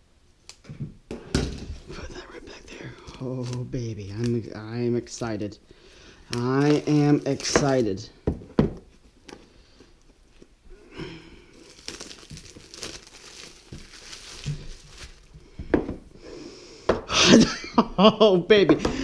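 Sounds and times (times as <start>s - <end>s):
cardboard box rustling and crinkling: 6.4s - 8.1s, 11.6s - 15.4s.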